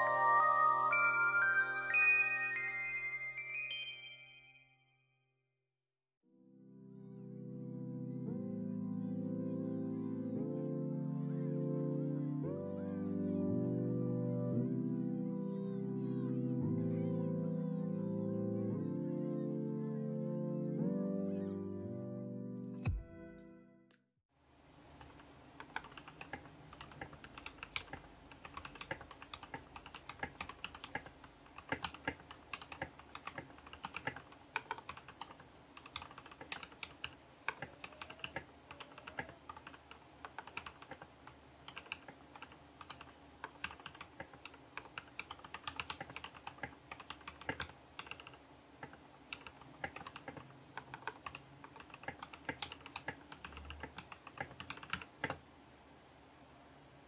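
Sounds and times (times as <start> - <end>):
mechanical keyboard typing: 25.0 - 55.4.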